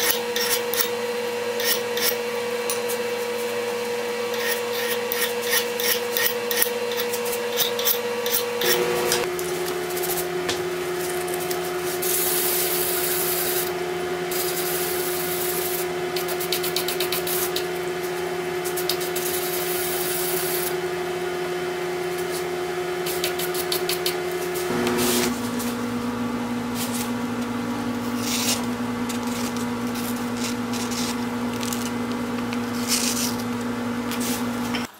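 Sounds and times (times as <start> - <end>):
file scraping steel: 0.0 - 3.0, 4.3 - 9.3, 28.0 - 31.2.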